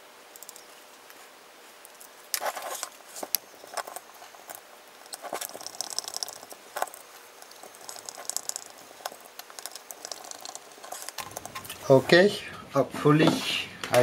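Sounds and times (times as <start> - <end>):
scratchy rubbing: 2.4 - 11.8.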